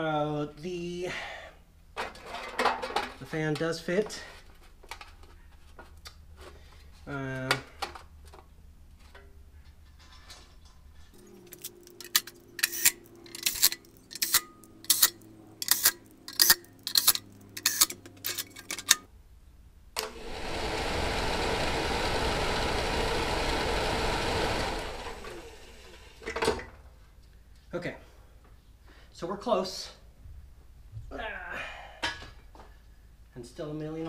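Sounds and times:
cordless drill driving screws: 11.6 - 18.6
blower motor running: 20.0 - 26.3.

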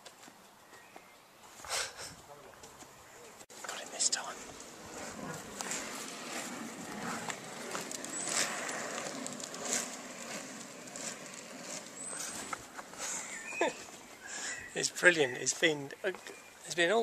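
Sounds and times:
roller-skate wheels rolling on tarmac: 4.2 - 17.0.

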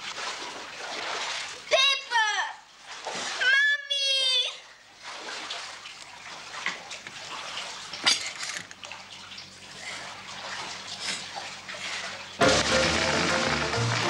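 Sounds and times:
water splashing from broken pipe: 0.0 - 1.9, 2.8 - 3.6, 5.0 - 14.0.

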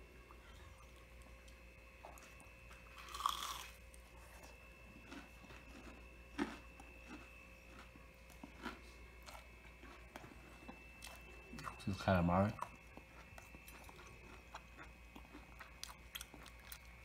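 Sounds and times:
crunchy chewing: 0.4 - 17.0.

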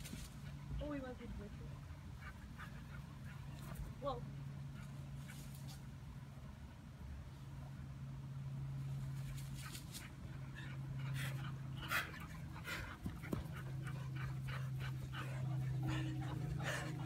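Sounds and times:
steady low hum: 0.0 - 17.0
dog panting: 9.2 - 17.0.

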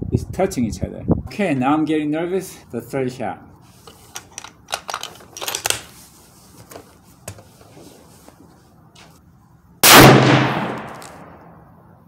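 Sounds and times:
rifle bolt clicking and clattering: 4.1 - 5.9.

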